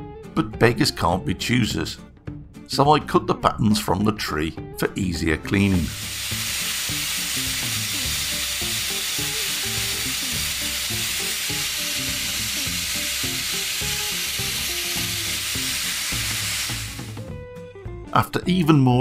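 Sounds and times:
background music: 0.0s - 19.0s
angle grinder cutting metal: 5.9s - 17.3s.

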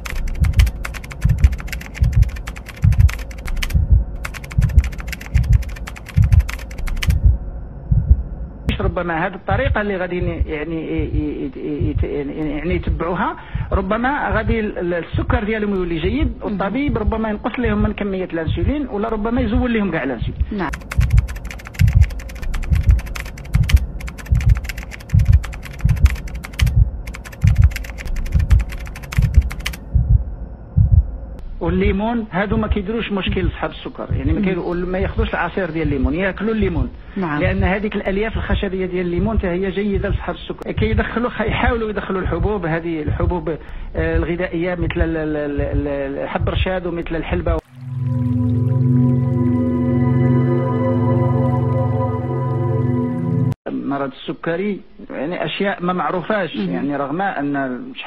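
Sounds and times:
keyboard typing clicks: 0.0s - 7.2s, 20.7s - 29.8s
deep low thump: 3.7s - 4.8s, 7.1s - 8.3s, 29.8s - 31.2s, 38.4s - 43.4s, 44.0s - 46.7s.

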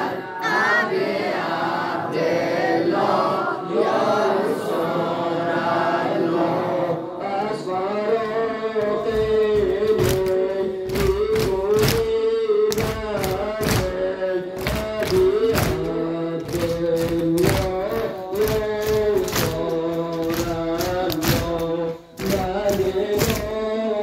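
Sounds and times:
men chanting a lament: 0.0s - 24.0s
hands beating on chests: 8.8s - 23.6s.

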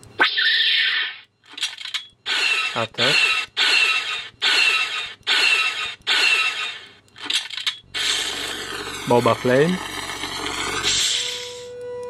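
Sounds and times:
blaster firing sound effects: 2.2s - 11.7s.

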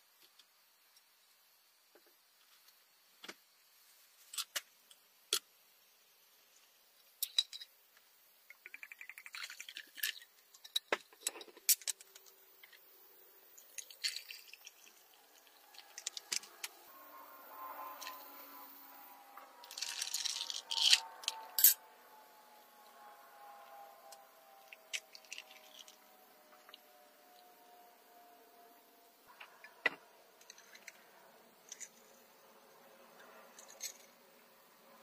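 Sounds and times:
soda fizzing: 8.5s - 10.3s
whisky pouring over ice: 8.6s - 10.3s, 13.6s - 16.6s, 19.6s - 21.4s, 24.9s - 26.0s
ice crackling: 13.6s - 16.5s
ice cubes clinking in glass: 13.8s - 16.4s, 19.6s - 21.8s.

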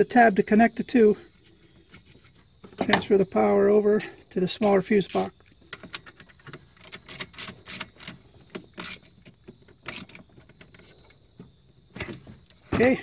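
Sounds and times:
screwdriver and plastic parts clicking: 4.0s - 10.9s.

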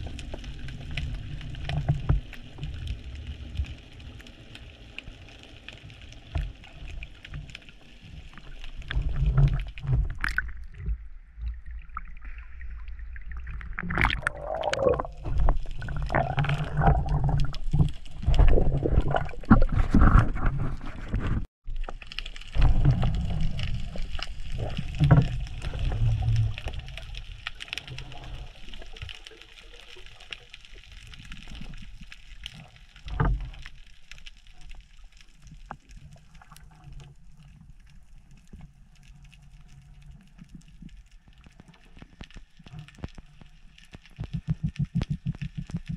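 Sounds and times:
water rushing and gurgling: 0.0s - 20.2s, 21.7s - 33.8s.

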